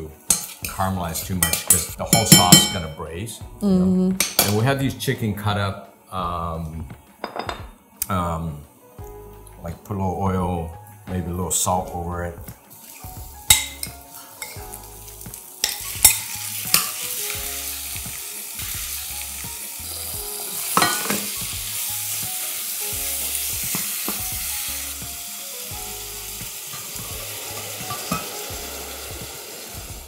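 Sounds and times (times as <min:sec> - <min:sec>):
chicken sizzling in hot oil: 0:12.6 - 0:30.0.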